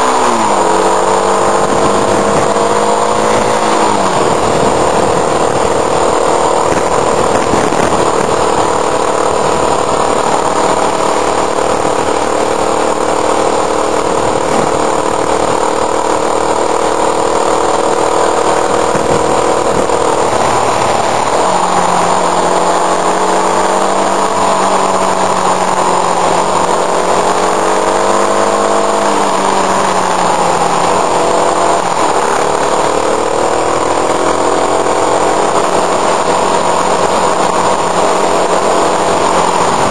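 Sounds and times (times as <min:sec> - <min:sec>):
motorcycle engine running: 0:00.0 - 0:39.9
wind rushing: 0:01.2 - 0:13.0.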